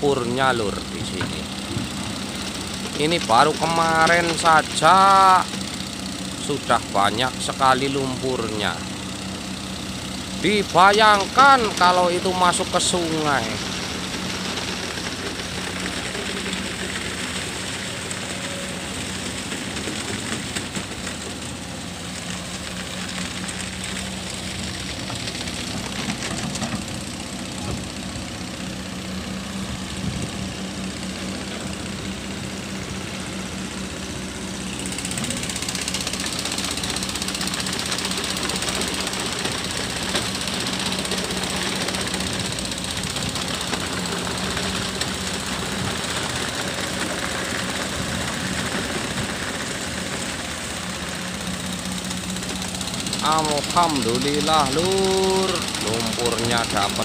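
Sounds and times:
excavator diesel engine droning: 0.0s - 57.0s.

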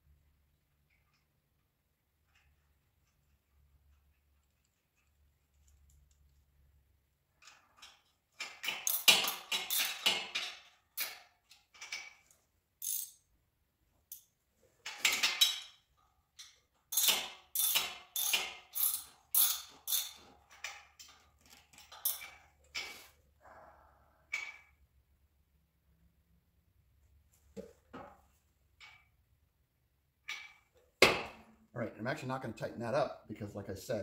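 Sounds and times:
hand ratchet clicking: 7.4s - 11.2s, 12.8s - 13.2s, 16.4s - 22.4s.

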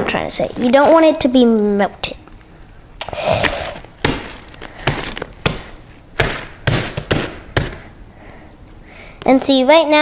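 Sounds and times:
slime popping: 3.0s - 7.8s
slime squishing: 3.0s - 8.0s.

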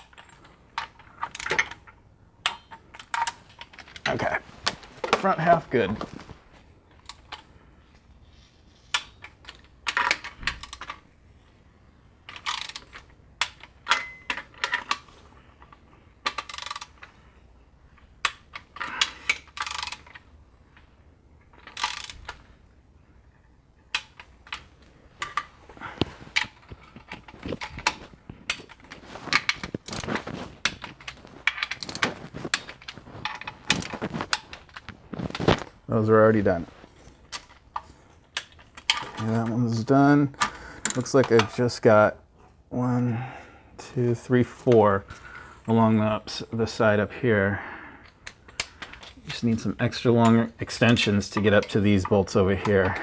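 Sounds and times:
ratcheting torque wrench clicking: 12.3s - 15.0s, 16.2s - 17.1s, 18.2s - 20.2s, 21.6s - 22.4s.

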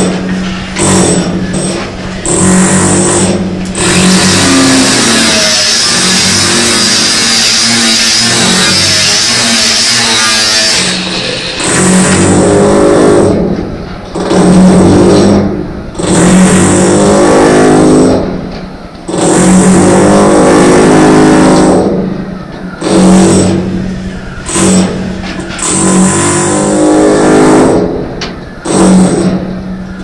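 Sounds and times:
motor running in bursts: 0.0s - 13.5s, 25.6s - 27.9s, 28.6s - 29.4s.

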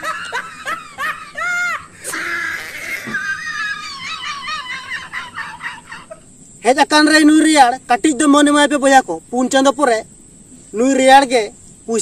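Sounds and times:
high-pitched voice-like squealing: 2.0s - 3.4s.

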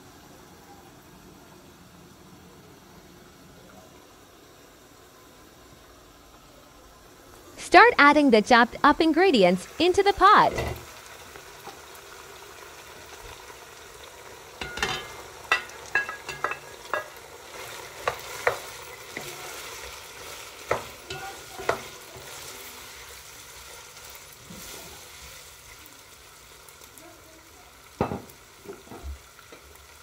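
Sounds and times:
chicken sizzling in hot oil: 7.3s - 30.0s.

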